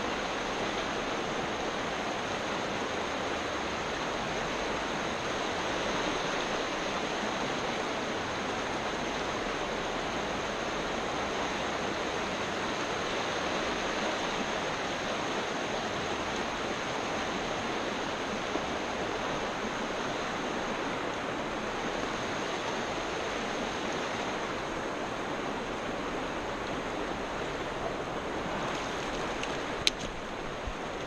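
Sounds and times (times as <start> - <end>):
river rushing over rocks: 0.0 - 31.0.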